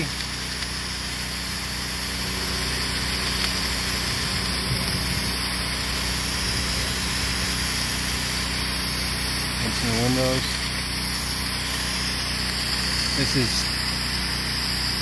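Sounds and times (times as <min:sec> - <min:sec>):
pressure washer engine running: 0:00.0 - 0:15.0
water jet hissing: 0:00.0 - 0:15.0.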